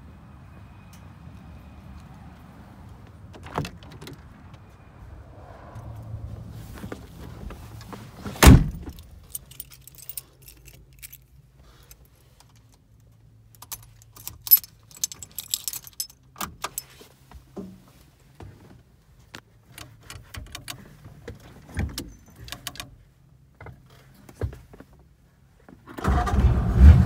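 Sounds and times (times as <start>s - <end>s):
car door thud: 8.4s - 9.0s
key ring jangling: 8.7s - 11.3s, 13.6s - 16.9s.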